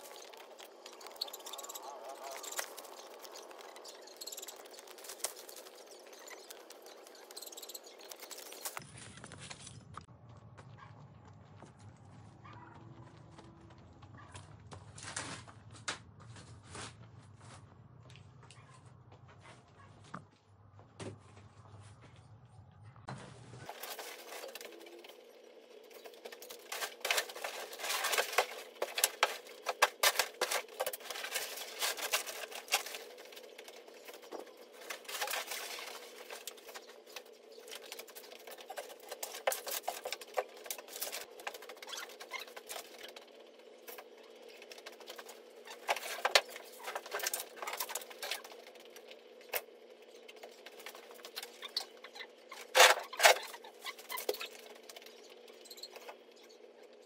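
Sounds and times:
plastic sacks rustling and crackling: 0.0 - 9.8, 23.1 - 25.2, 25.9 - 43.2
footsteps on rubble: 0.0 - 22.3.

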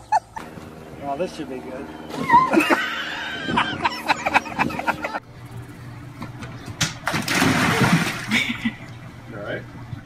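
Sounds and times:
low hum: 0.0 - 10.0
children shrieking: 2.1 - 5.2
splashing impacts: 6.8 - 8.8.

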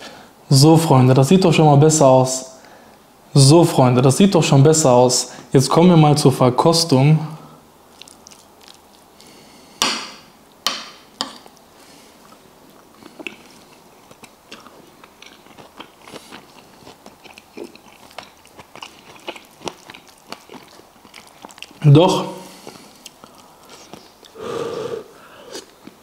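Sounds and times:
chewing with wet mouth clicks: 7.9 - 9.4, 12.2 - 21.8, 22.5 - 24.4.

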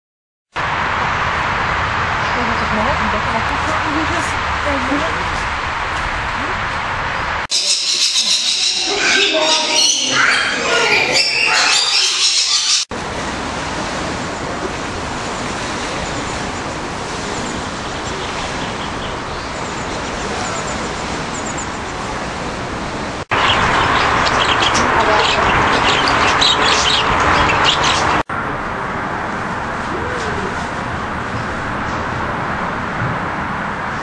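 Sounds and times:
parrots chattering shrilly: 7.5 - 12.8, 23.4 - 28.2.

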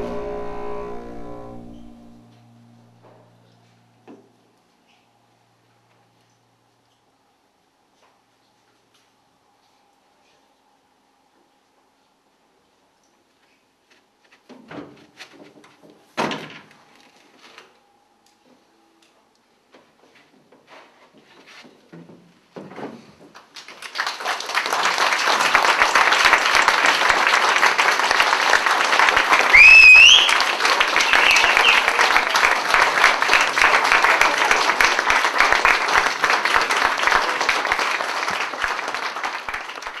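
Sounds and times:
audience applauding: 23.4 - 40.0
loud rising whistle: 29.4 - 32.1.

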